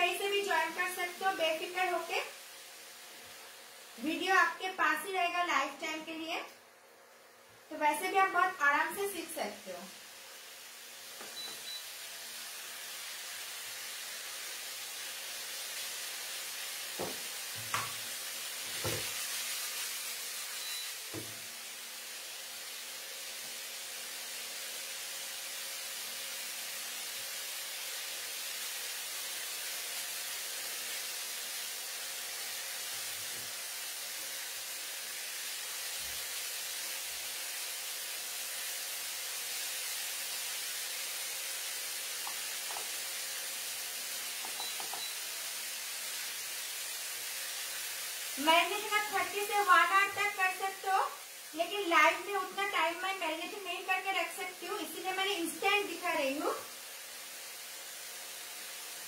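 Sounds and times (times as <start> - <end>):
chicken sizzling in oil: 0.0 - 6.0, 7.1 - 59.0.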